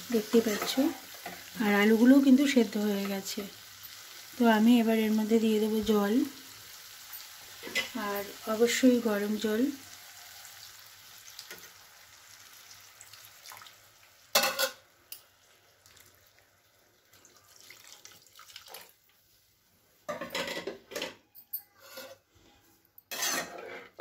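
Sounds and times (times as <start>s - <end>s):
water pouring into pan: 10.6s - 14.4s, 15.4s - 19.1s.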